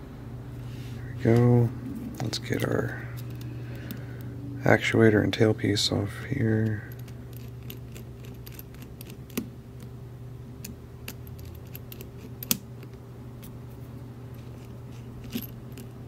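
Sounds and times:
steady low hum: 0.0 - 16.0
metal tool clicking on lock: 11.1 - 12.6.

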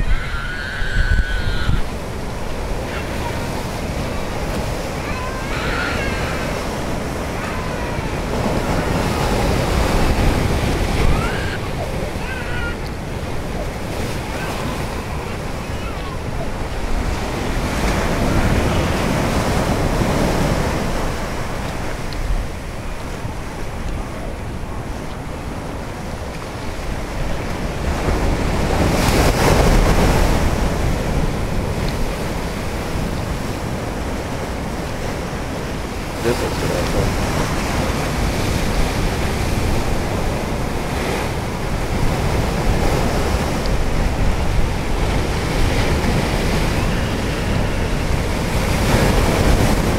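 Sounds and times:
wind rumble on microphone: 0.0 - 5.0
ocean surf breaking on rock: 0.0 - 49.9.

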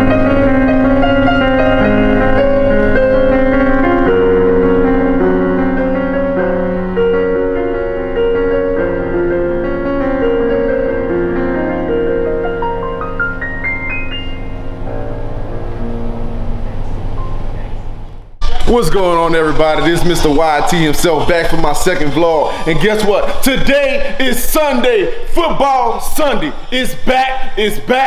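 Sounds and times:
slow keyboard music: 0.0 - 18.8.

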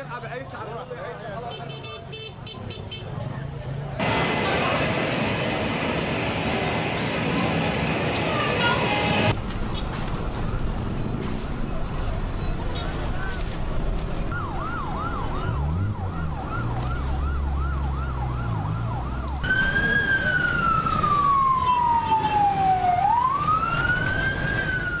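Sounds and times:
wailing siren: 14.3 - 25.0
yelping siren: 14.4 - 25.0.

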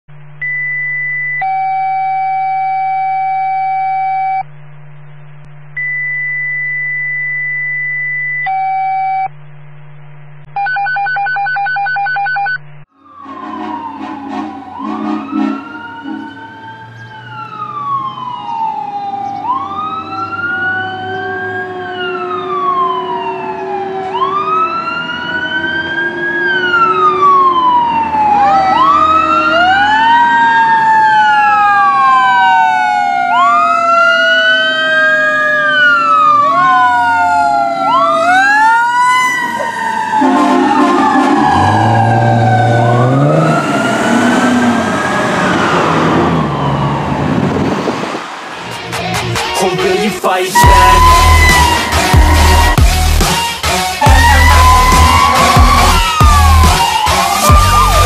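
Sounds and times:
electronic tones and beeps: 0.3 - 13.7, 50.6 - 52.9
fire engine siren wailing: 12.9 - 48.7, 50.5 - 58.0
fire engine rumble: 12.9 - 48.8, 54.0 - 58.0.

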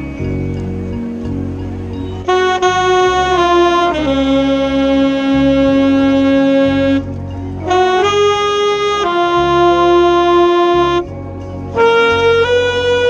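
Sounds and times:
alto saxophone long notes: 0.9 - 13.0
marching band playing: 2.2 - 11.1.

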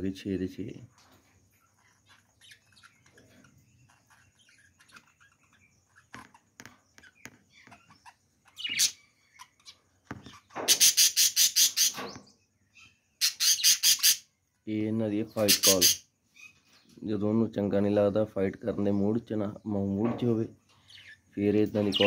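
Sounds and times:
harsh pulsed bird chatter: 0.0 - 22.0
budgerigars chirping: 1.0 - 14.3, 15.3 - 16.9, 20.7 - 22.0.

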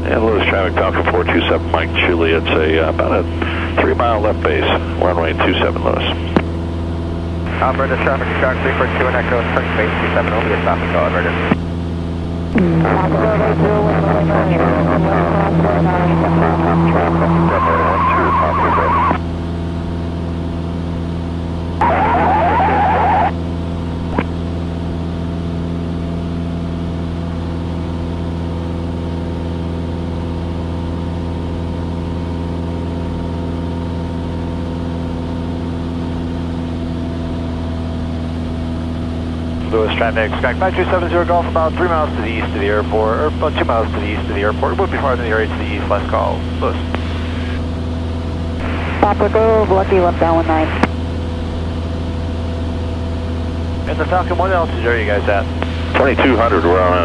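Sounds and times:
garbled radio transmission: 0.0 - 6.5, 7.5 - 11.6, 12.6 - 19.2, 21.8 - 23.4, 39.6 - 47.7, 48.6 - 50.9, 53.8 - 57.0
propeller plane engine droning: 0.0 - 57.0.

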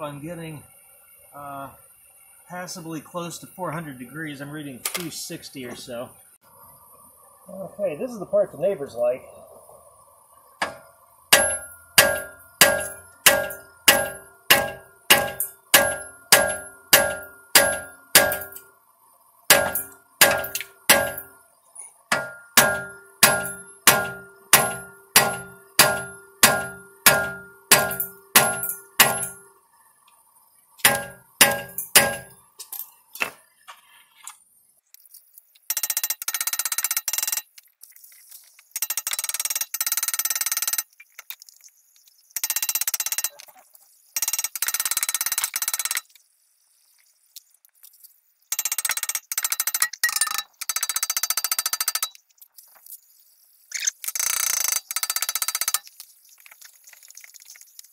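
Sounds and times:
steady hiss: 0.0 - 35.6, 46.0 - 48.5, 52.4 - 53.7
hammer clanging on metal: 10.6 - 18.7, 19.5 - 21.3, 22.1 - 29.5, 30.8 - 32.4.

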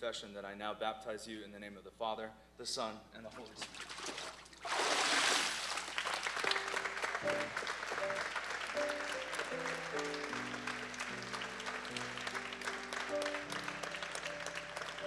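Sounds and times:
water splashing: 3.3 - 6.3
congregation applauding: 4.8 - 15.0
music with held notes: 6.4 - 15.0.

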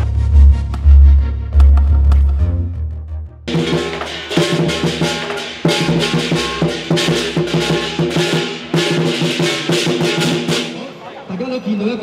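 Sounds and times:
sustained low notes: 0.0 - 3.8
drums and crashing cymbals: 3.5 - 11.1.

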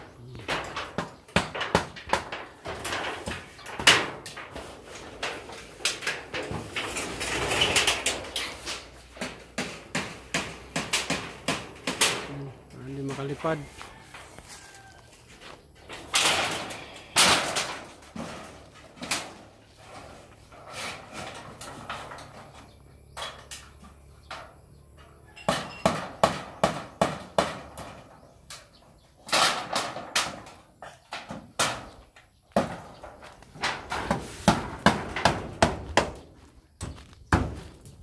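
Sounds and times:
metal sheet knocks and bangs: 0.3 - 12.3, 15.9 - 20.2, 25.5 - 28.2, 29.2 - 32.0, 32.6 - 37.7.

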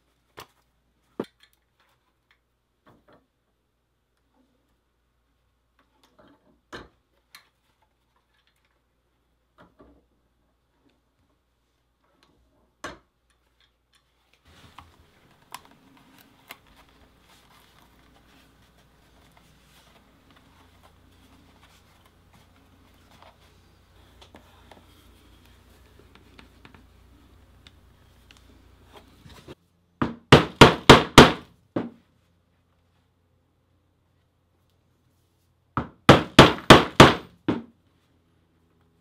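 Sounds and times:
leather handling and scraping: 14.0 - 26.7.

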